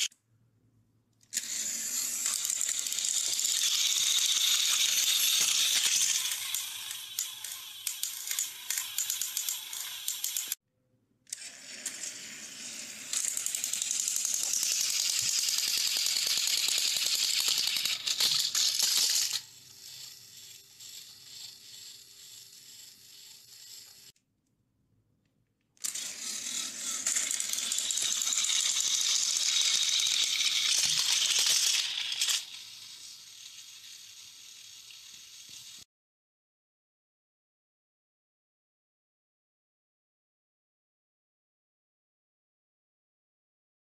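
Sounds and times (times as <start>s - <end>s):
toy train rattling on track: 1.3s - 10.6s, 11.3s - 24.2s, 25.8s - 35.9s.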